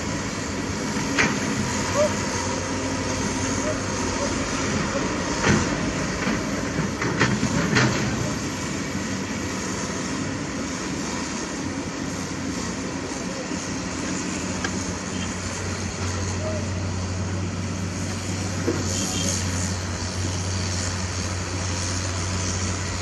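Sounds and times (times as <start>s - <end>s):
heavy diesel engines running: 0.0s - 23.0s.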